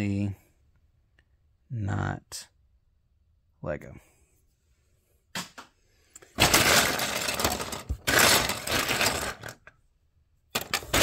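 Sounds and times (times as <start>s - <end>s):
plastic bricks clattering: 6.2s - 9.8s, 10.5s - 11.0s.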